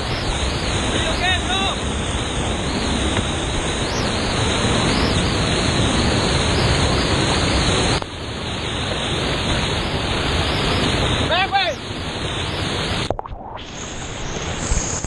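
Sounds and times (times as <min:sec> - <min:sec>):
waterfall roaring: 0:00.0 - 0:13.1.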